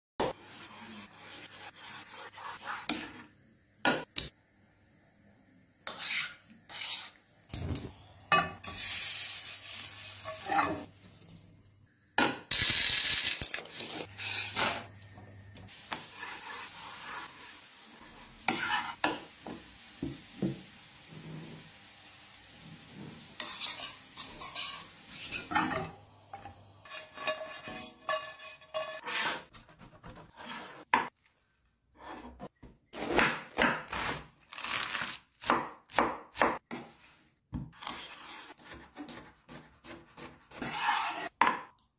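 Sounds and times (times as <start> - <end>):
knife and utensils on cutting board: 18.5 - 19.2, 23.2 - 31.2, 37.8 - 41.4.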